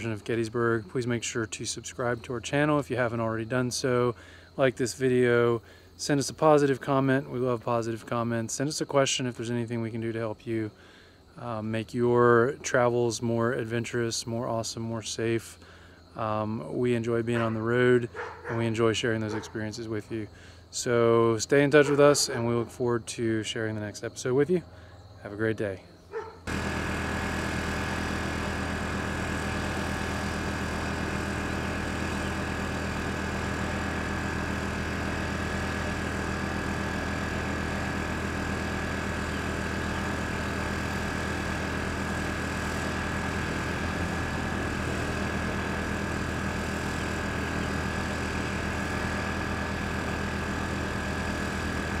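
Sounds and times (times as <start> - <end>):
engine idling: 26.4 - 52.0.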